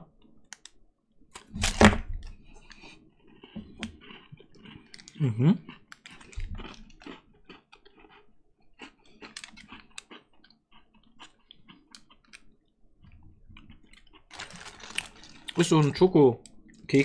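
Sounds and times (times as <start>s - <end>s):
wrapper crinkling: 14.3s - 16.0s.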